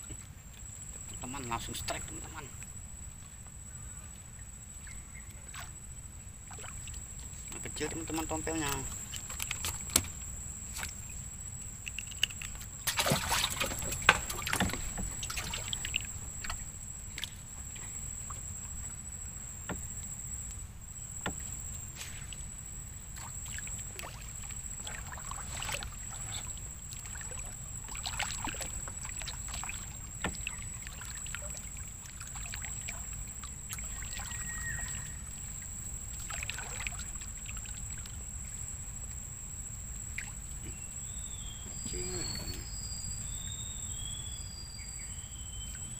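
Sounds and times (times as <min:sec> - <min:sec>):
paddle pulling through water: 0:05.2 - 0:43.4
splashes and knocks: 0:06.5 - 0:11.2, 0:11.8 - 0:18.5, 0:19.6 - 0:20.4, 0:21.2 - 0:38.2
faint steady high tone: 0:40.6 - 0:45.9.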